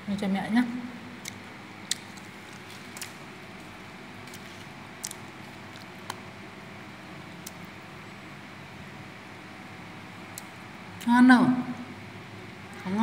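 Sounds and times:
steady background noise: 0.0s - 13.0s
child chewing crunchy fruit: 1.2s - 6.5s.

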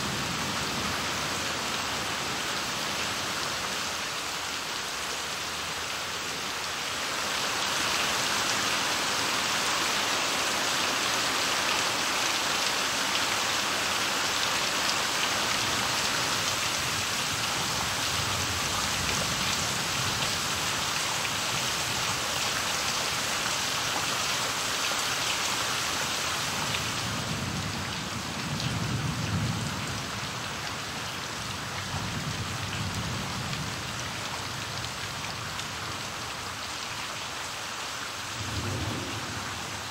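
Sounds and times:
rain spattering on ground: 0.0s - 39.9s
thunder rumbling: 38.2s - 39.9s.

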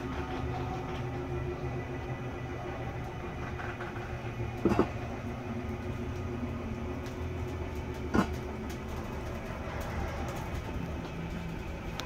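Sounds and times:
clunk: 3.4s - 5.0s, 8.0s - 8.5s.

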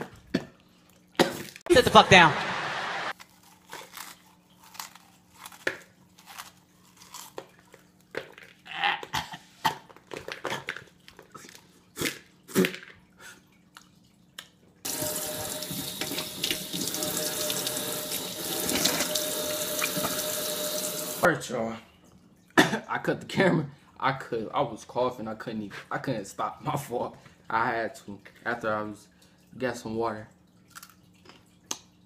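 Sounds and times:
chips crunching: 3.1s - 8.6s, 30.7s - 31.8s
water running into a sink: 14.8s - 21.3s.

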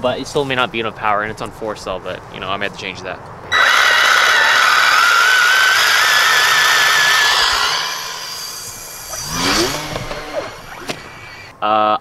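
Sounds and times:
model airplane motor whining: 3.5s - 11.5s.

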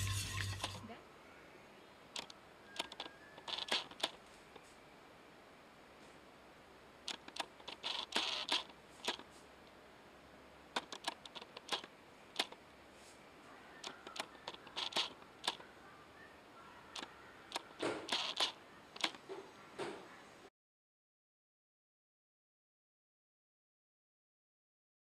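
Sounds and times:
sharp clicks and light taps: 7.1s - 9.2s, 10.8s - 12.6s.

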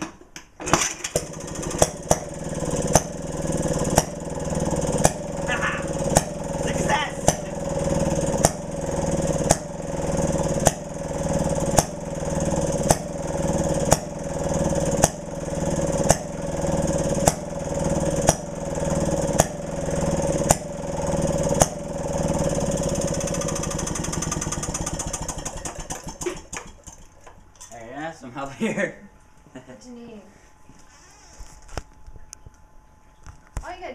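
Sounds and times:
engine clatter: 0.6s - 27.4s
engine bangs: 1.2s - 27.2s.

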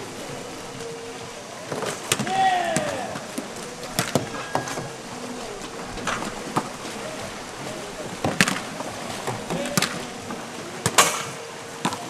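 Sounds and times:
paddles and kayaks knocking: 0.0s - 12.0s
person shouting: 2.2s - 3.2s.

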